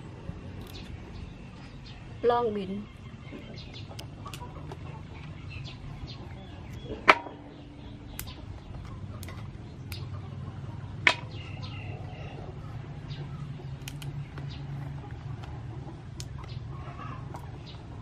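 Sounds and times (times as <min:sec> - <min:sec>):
beans snapping by hand: 0:00.6 - 0:01.0, 0:03.8 - 0:04.8, 0:08.1 - 0:10.1, 0:13.7 - 0:16.6.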